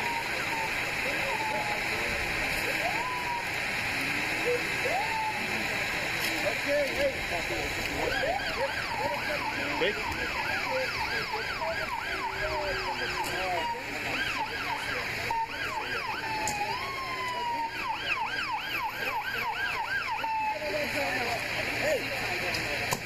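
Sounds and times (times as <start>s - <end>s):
emergency siren yelping: 0.0s - 21.5s
slower siren tone gliding upward: 8.0s - 20.7s.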